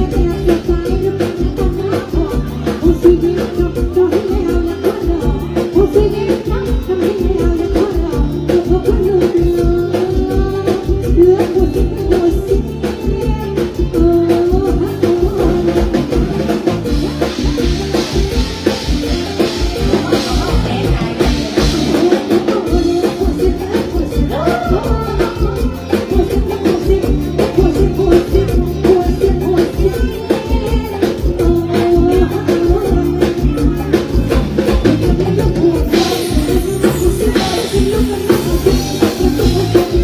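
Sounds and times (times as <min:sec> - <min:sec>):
drum kit beat: 0:00.0 - 0:40.0
pulsing bass: 0:00.0 - 0:40.0
woman singing: 0:00.0 - 0:40.0.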